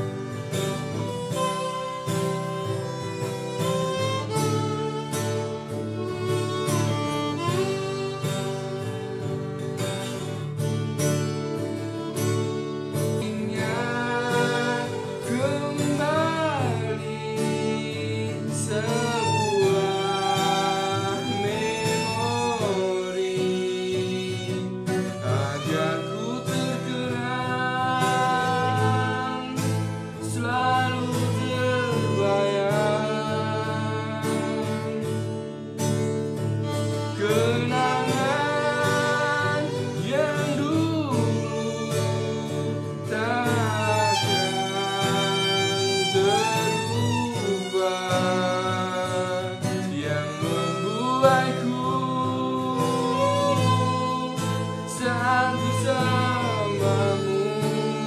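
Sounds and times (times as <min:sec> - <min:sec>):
bowed strings: 0:00.0 - 0:58.0
guitar: 0:00.0 - 0:58.0
person singing wavering melody: 0:13.1 - 0:35.0, 0:37.0 - 0:58.0.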